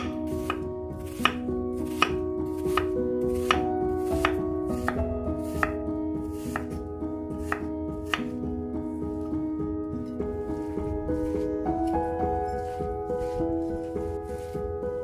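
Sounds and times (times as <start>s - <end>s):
knife chopping on cutting board: 0.0s - 6.8s, 7.4s - 8.4s
soft background music: 0.0s - 15.0s.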